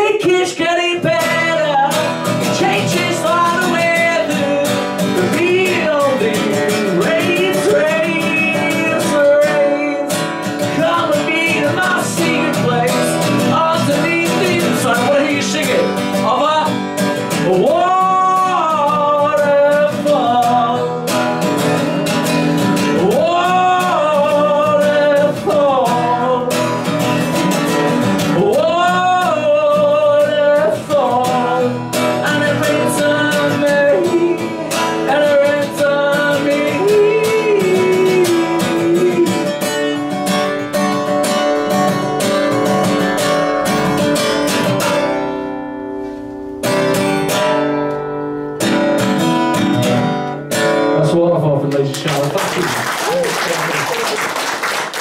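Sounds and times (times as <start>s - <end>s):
man singing wordless vocal lines: 0.0s - 40.5s
acoustic guitar strumming: 0.0s - 55.0s.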